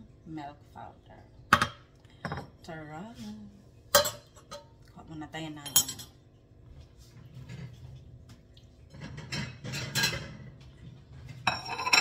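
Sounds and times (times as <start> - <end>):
kitchen utensils clattering: 3.9 - 4.7, 5.6 - 6.2, 8.9 - 12.0.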